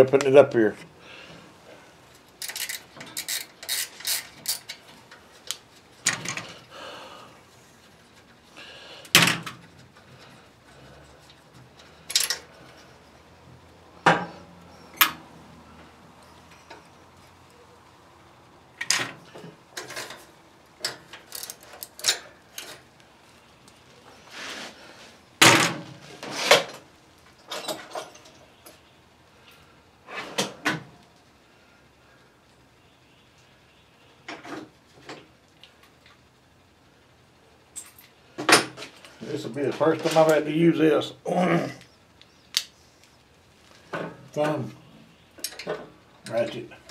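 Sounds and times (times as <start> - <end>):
metal parts and tools clinking: 2.2 - 4.8, 12.0 - 12.5.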